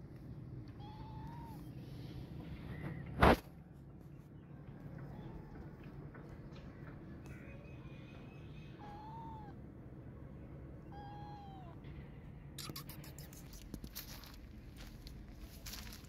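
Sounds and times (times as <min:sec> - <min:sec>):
kitten meowing: 0:00.7 - 0:01.7, 0:08.8 - 0:09.6, 0:10.8 - 0:11.8, 0:12.6 - 0:13.4.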